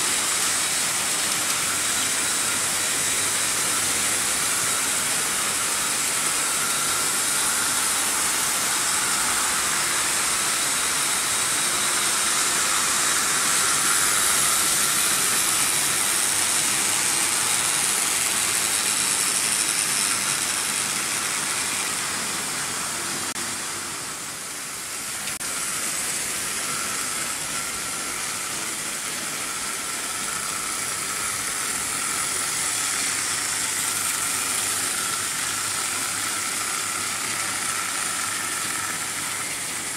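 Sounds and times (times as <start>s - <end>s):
electric motors whirring: 0.0s - 39.9s.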